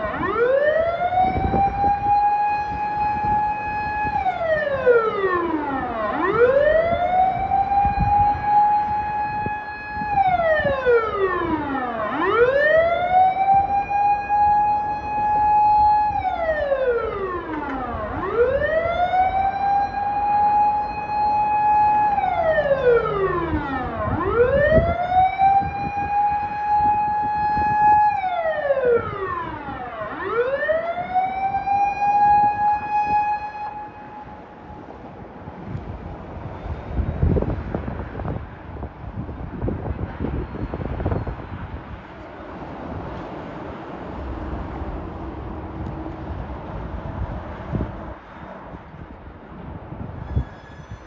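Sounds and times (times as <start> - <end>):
vehicle siren wailing: 0.0 - 35.8.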